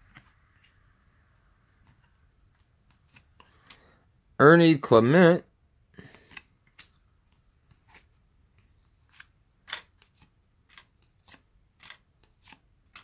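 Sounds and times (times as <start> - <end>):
cards flipped by hand: 1.8 - 3.8, 6.0 - 13.0.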